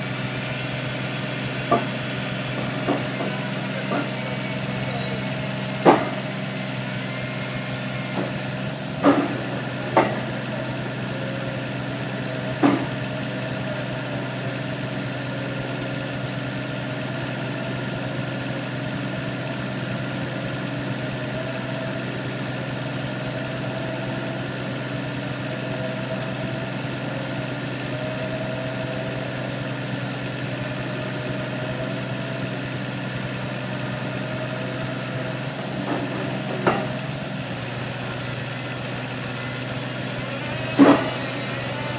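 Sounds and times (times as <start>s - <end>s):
diesel engine running: 0.0s - 41.9s
sharp knocks: 5.8s - 6.2s.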